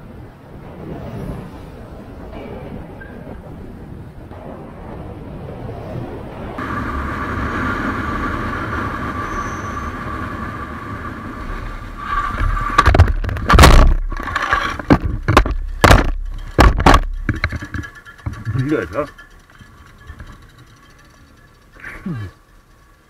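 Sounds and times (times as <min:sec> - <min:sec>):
wind noise: 0:00.0 - 0:21.2
steady whine: 0:04.2 - 0:23.0
motorcycle engine: 0:06.6 - 0:23.0
motorcycle crash knocks and thuds: 0:12.7 - 0:18.4.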